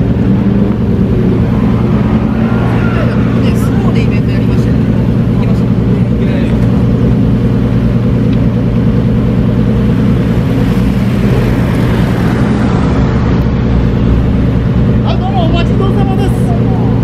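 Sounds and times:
car engine idling: 0.0s - 17.0s
car driving past: 0.6s - 5.6s, 9.9s - 14.7s.

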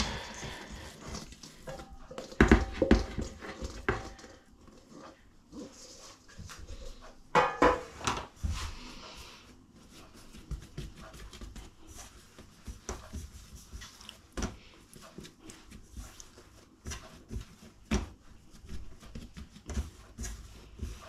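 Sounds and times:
soft thumps and slaps of dough: 9.9s - 21.0s.

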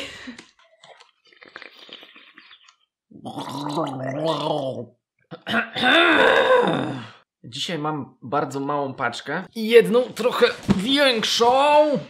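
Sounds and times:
faint sip: 0.4s - 4.2s
person gargling: 3.1s - 7.2s.

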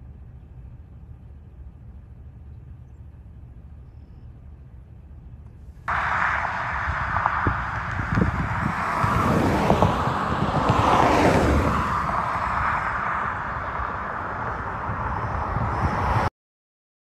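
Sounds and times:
car passing by: 5.9s - 16.3s
wind buffeting microphone: 5.9s - 16.3s.

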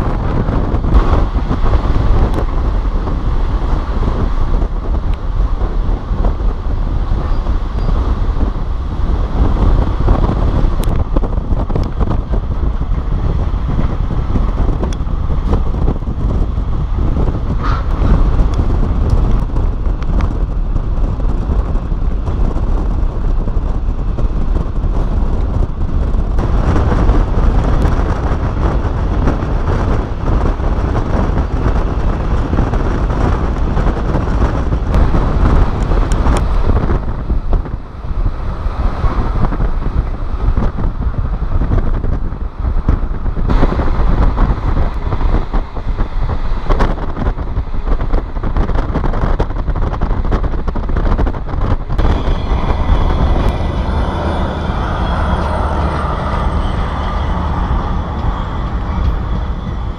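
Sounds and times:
train rumbling on rails: 0.0s - 59.9s
wind buffeting microphone: 0.0s - 59.9s.

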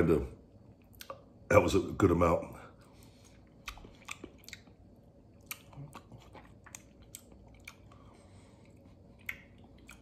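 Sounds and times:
wet mouth clicks and lip smacks: 3.6s - 4.7s.

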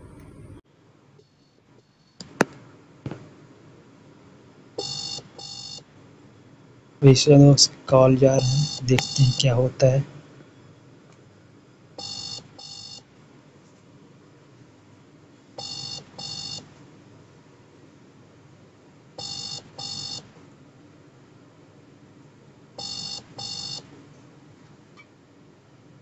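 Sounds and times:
phone ringing tone beeps: 4.8s - 5.8s, 8.4s - 9.6s, 12.0s - 13.0s, 15.6s - 16.7s, 19.2s - 20.3s, 22.8s - 23.8s.

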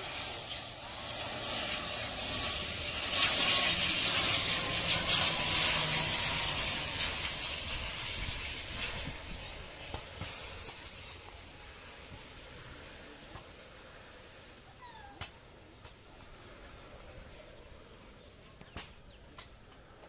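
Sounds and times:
turboprop plane flying overhead: 0.0s - 20.0s.

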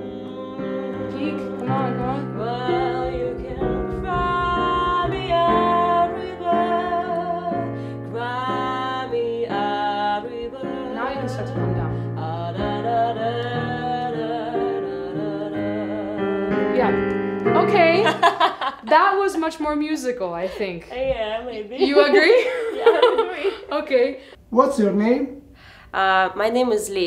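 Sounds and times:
woman singing: 0.0s - 17.0s, 20.9s - 23.8s
digital piano chords: 0.0s - 19.7s.

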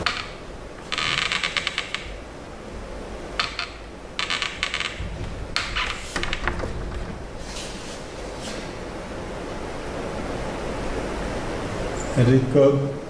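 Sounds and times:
duster wiping whiteboard: 5.7s - 8.8s.

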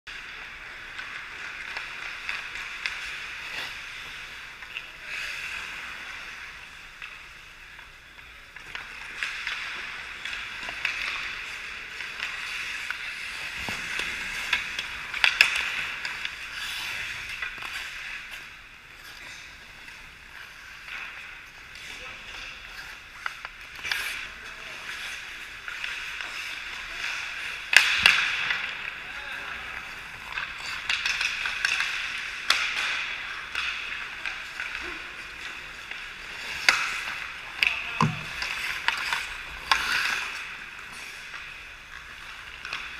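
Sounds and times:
hockey sticks and puck clicking: 0.1s - 42.9s
skate blades scraping ice: 0.1s - 42.9s.

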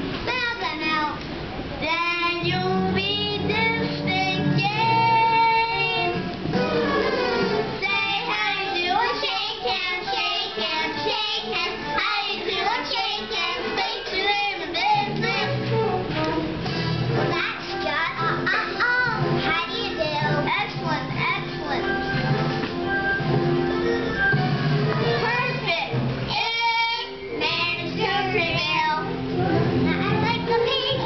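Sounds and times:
children singing: 1.9s - 16.4s.

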